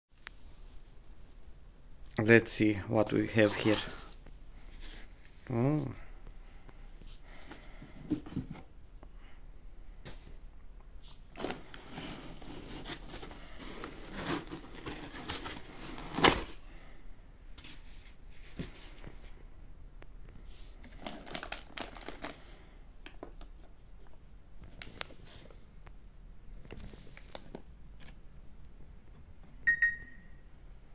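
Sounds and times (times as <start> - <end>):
cardboard and foam packaging rustling: 3.2 - 5.3, 7.0 - 8.7, 11.1 - 16.6, 17.6 - 19.4, 20.5 - 22.5, 23.2 - 25.6.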